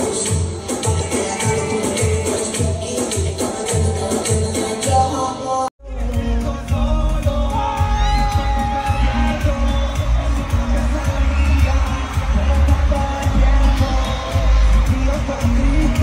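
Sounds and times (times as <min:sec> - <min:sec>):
crowd noise: 0:00.0 - 0:16.0
person singing: 0:00.0 - 0:16.0
heavy bass beat: 0:05.8 - 0:16.0.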